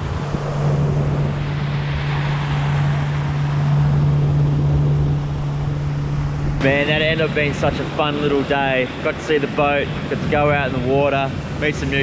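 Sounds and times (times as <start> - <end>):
motorboat engine humming: 0.0 - 12.0
water rushing past hull: 0.0 - 12.0
wind on microphone: 0.0 - 12.0.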